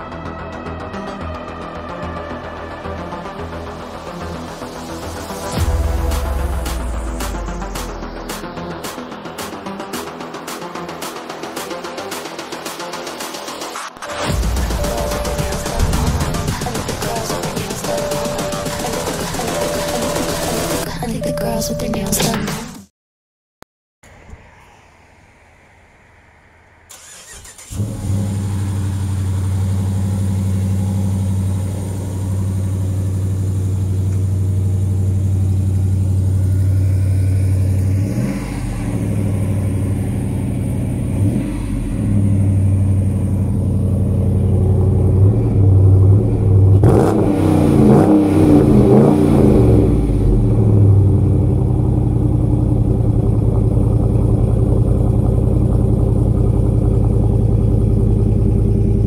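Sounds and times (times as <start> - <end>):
car engine revving: 0.0 - 20.8, 26.9 - 59.0
car engine starting: 0.0 - 20.9, 26.1 - 59.0
car engine idling: 14.2 - 20.8, 26.9 - 59.0.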